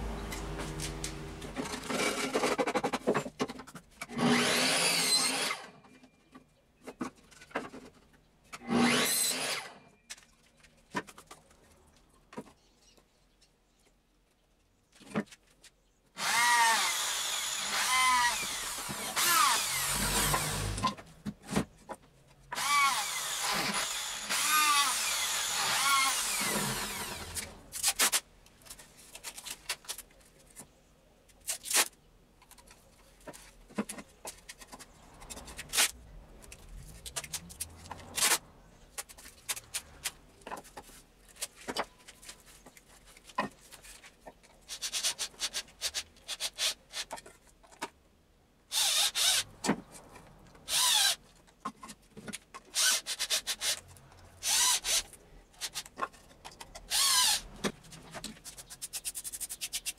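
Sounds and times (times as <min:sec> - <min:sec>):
electric drill running: 0:16.2 - 0:20.8, 0:22.6 - 0:27.5, 0:48.7 - 0:49.4, 0:56.9 - 0:57.4
hands rubbing plastic board: 0:57.5 - 0:59.9.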